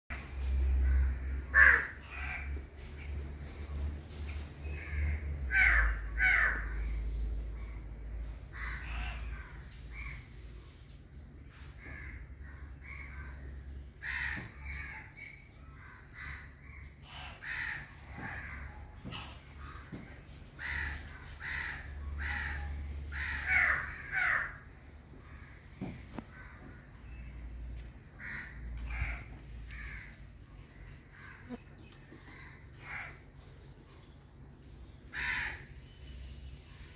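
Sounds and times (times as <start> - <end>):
low steady rumble: 0.1 - 36.9
crows cawing: 0.8 - 2.6, 4.6 - 7.0, 8.5 - 10.3, 11.5 - 27.2, 28.1 - 33.4, 35.1 - 35.8.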